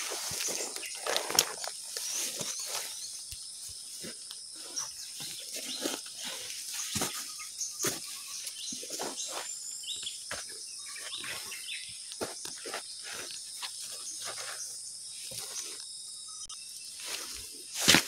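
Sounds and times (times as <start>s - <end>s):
leaves and stems rustling: 0.0s - 9.6s, 16.8s - 18.0s
birds chirping and calling: 0.0s - 18.0s
high insect drone: 0.0s - 18.0s.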